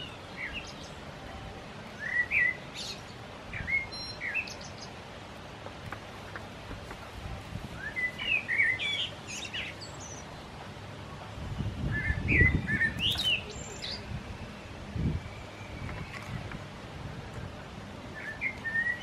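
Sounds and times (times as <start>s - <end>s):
bird singing chirpy phrases: 0.0s - 1.1s, 2.0s - 5.0s, 7.8s - 10.5s, 11.6s - 16.4s, 18.1s - 19.0s.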